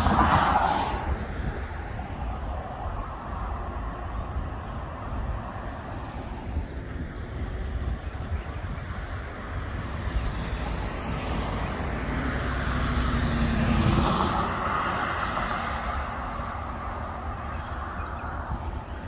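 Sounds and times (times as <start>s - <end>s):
car driving past: 9.8s - 18.4s.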